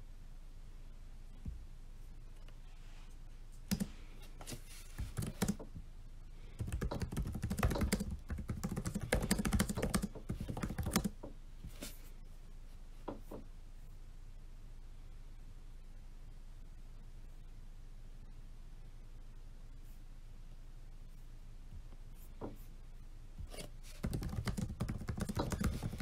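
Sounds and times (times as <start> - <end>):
typing on laptop keyboard: 3.7 - 3.9, 5.0 - 5.7, 6.6 - 11.3, 24.0 - 26.0.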